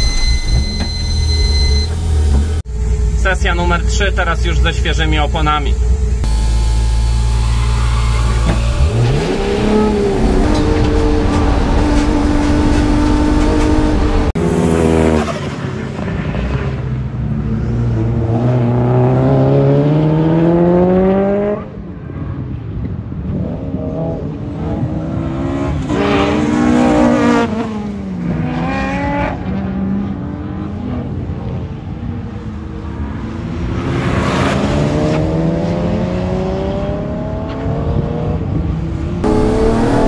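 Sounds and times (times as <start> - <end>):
racing car engine revving: 1.6 - 16.8, 39.2 - 40.0.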